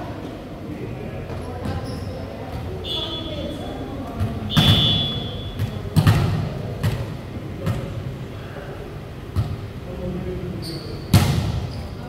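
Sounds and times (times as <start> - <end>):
volleyball thuds: 4.2 - 7.9.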